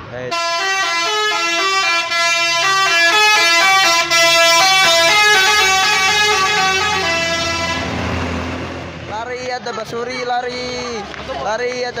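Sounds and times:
bus engine hum: 0.0 - 12.0
multi-tone air horn melody: 0.3 - 7.9.

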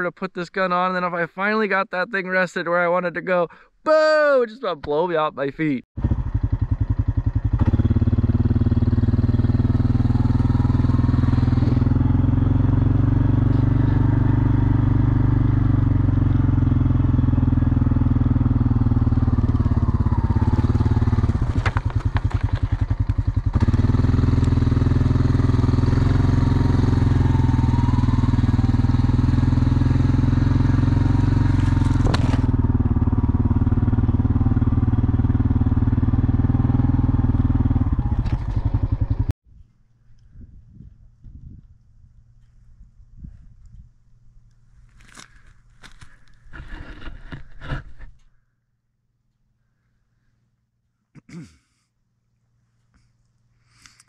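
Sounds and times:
engine running: 6.0 - 39.3.

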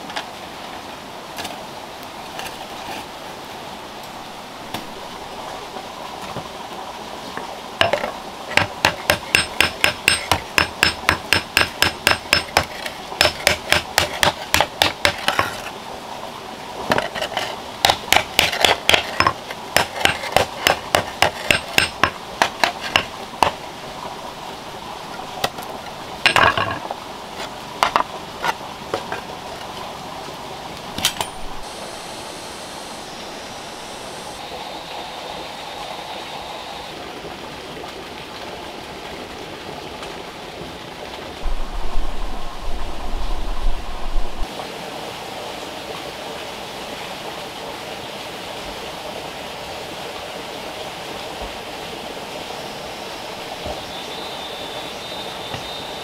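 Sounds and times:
hammer beating hot steel on anvil: 8.6 - 15.4, 17.9 - 23.1.

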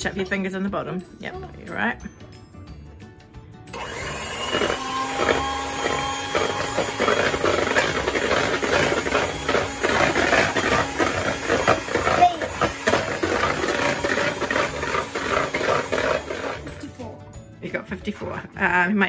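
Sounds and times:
hand mixer motor whirring: 3.7 - 17.0
beaters rattling in plastic bowl: 4.5 - 16.9.

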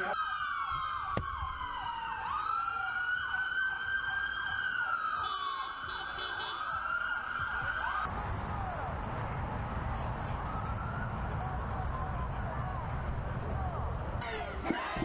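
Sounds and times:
police siren wailing: 0.0 - 9.0, 10.1 - 12.8.

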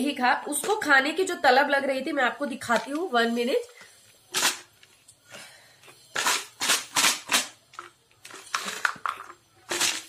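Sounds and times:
plastic packaging crinkling: 6.1 - 10.0.

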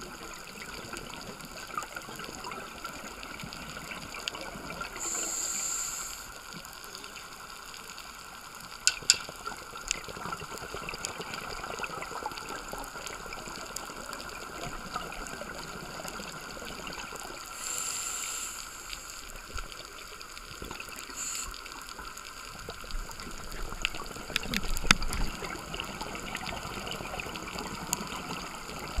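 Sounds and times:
watery hiss with faint crackling: 0.0 - 29.0
regulator hissing: 5.0 - 6.4, 17.5 - 19.4, 21.1 - 21.8.

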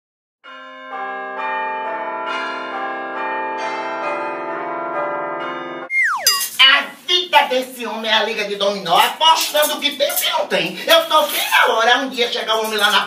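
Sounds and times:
bell-like chimes: 5.5 - 6.6.

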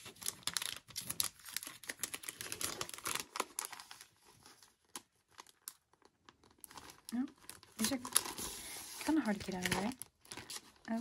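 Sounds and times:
plastic sleeve crinkling: 0.0 - 11.0
paper sheets rustling: 7.8 - 11.0.

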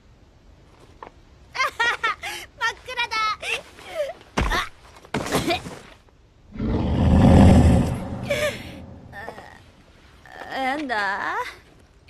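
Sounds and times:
low rushing rumble: 6.6 - 9.3.

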